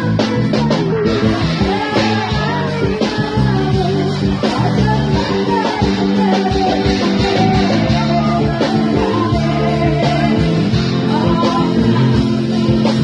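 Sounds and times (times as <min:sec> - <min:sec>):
guitar: 0:00.0 - 0:13.0
person singing: 0:00.0 - 0:13.0.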